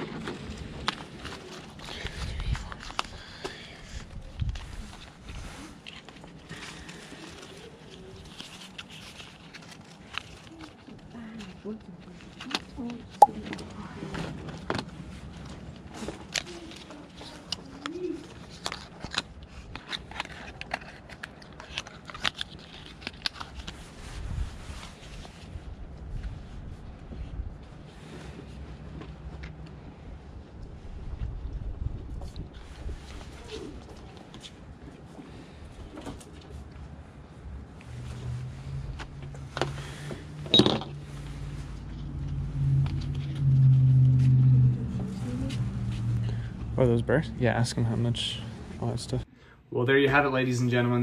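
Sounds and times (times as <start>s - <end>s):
packaging clicking and crackling: 16.1s - 23.8s
low hum: 37.4s - 49.6s.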